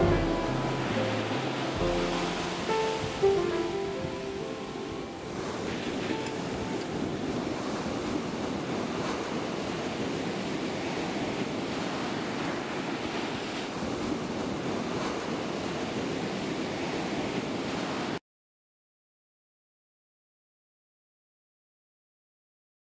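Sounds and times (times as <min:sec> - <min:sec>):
ocean waves rushing: 0:00.0 - 0:18.2.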